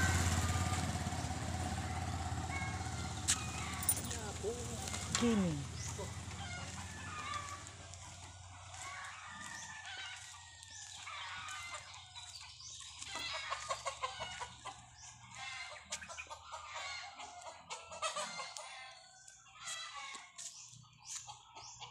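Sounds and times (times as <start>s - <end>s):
rooster crowing: 0.0s - 4.1s, 6.0s - 8.1s, 8.7s - 11.9s
chickens clucking: 0.0s - 21.9s.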